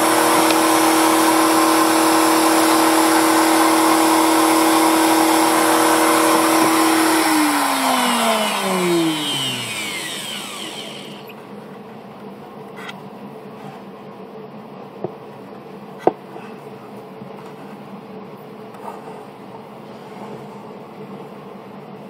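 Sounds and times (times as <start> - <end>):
router whining: 0.0 - 11.4.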